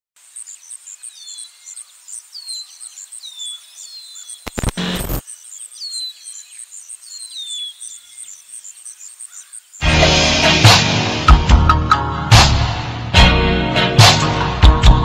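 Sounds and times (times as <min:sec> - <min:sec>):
high bird chirping: 0:00.3 - 0:09.8
loud burst of noise: 0:04.5 - 0:05.2.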